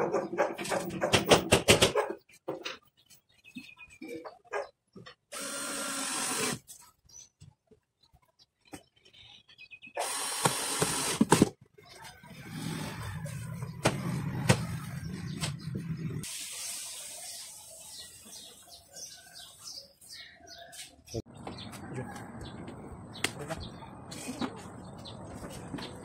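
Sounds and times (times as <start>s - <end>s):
cordless drill driving screw: 5.3s - 6.6s, 10.0s - 11.3s
bird chirps: 6.8s - 10.0s.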